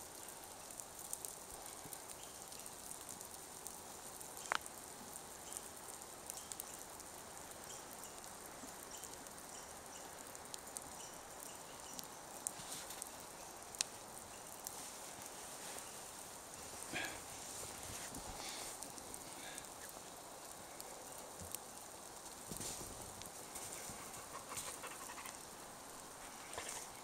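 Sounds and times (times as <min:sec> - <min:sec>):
outdoor background hiss: 0:00.0 - 0:27.0
light ticks: 0:04.4 - 0:04.8, 0:05.5 - 0:07.0.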